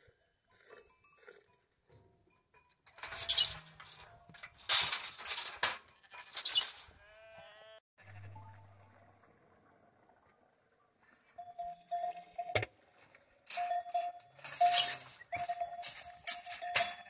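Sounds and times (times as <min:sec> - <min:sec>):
sheep bleating: 0:07.0 - 0:08.6.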